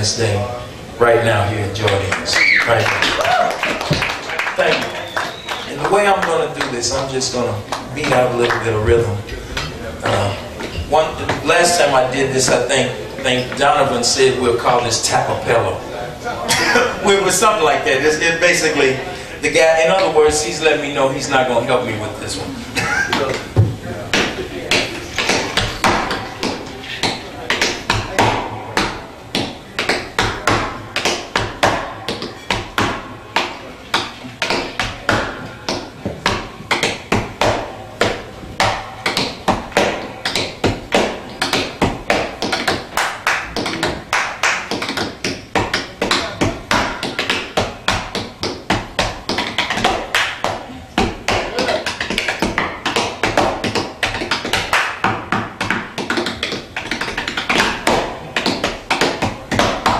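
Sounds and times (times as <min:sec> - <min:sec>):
tap shoes tapping on a board: 0:03.0 - 0:04.8, 0:23.1 - 0:59.9.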